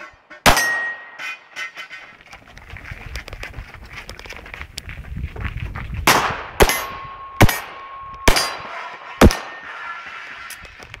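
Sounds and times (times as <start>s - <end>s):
pistol shots: 0.4s - 1.1s, 6.1s - 9.8s.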